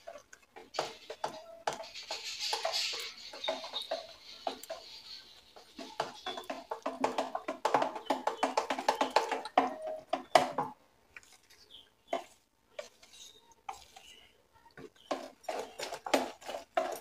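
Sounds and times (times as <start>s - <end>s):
hand squelching batter: 11.0s - 17.0s.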